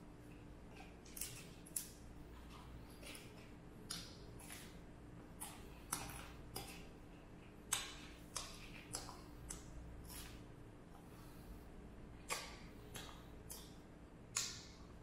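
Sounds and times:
person chewing crunchy food: 0:00.2 - 0:11.5
mouth clicks: 0:12.3 - 0:14.8.

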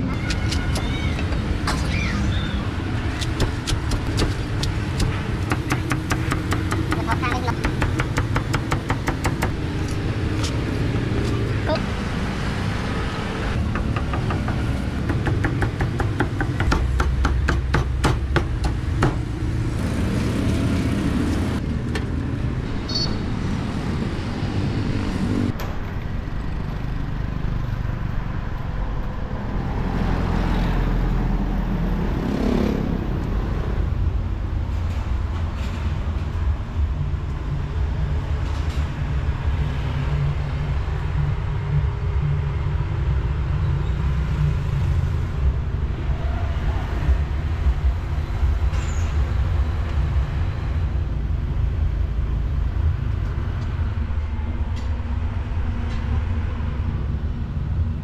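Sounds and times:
road traffic rumble: 0:00.0 - 0:58.0
cleaver chopping on wooden block: 0:03.2 - 0:09.6, 0:13.7 - 0:19.3
motorbikes passing: 0:18.8 - 0:33.9.

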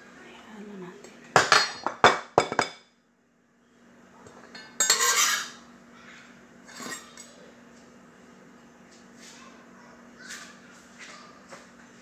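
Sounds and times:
knife scraping glass bowl: 0:04.8 - 0:05.6.

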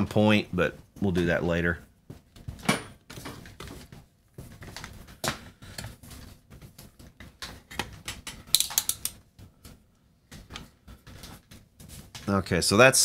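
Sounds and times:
clicks and rattles of test leads: 0:07.4 - 0:09.2.

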